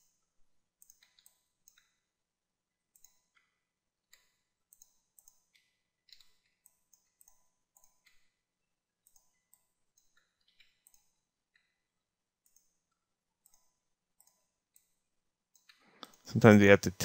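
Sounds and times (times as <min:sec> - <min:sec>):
mouse and keyboard clicking: 0:00.8 - 0:01.9, 0:04.1 - 0:08.2.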